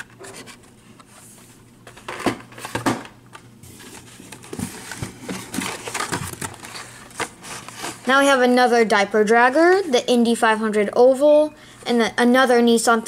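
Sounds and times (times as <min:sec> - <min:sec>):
plastic crinkling: 0:03.7 - 0:08.3.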